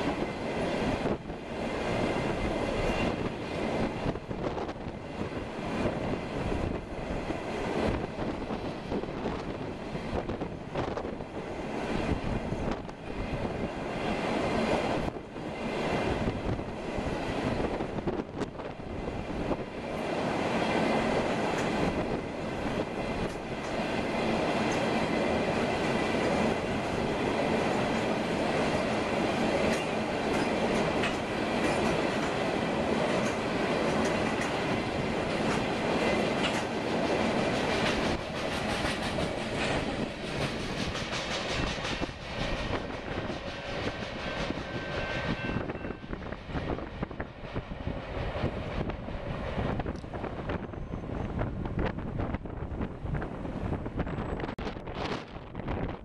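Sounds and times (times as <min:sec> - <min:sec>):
train wheels rumbling on rail: 0:00.0 - 0:56.0
wheels clacking over rail joints: 0:22.8 - 0:45.1.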